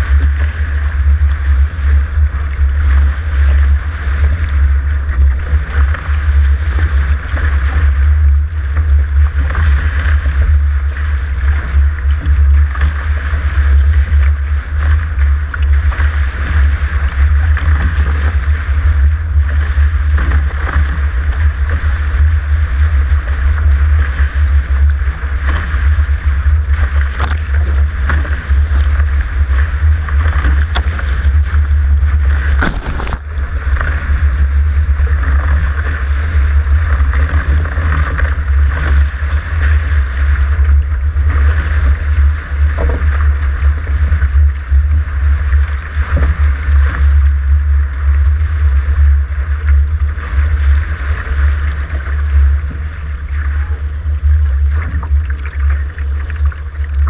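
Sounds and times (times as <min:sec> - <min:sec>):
water rushing along a boat hull: 0:00.0 - 0:57.0
wind rumble on microphone: 0:00.0 - 0:57.0
sharp knocks or splashes: 0:27.0 - 0:28.2, 0:30.4 - 0:31.4, 0:32.4 - 0:34.0.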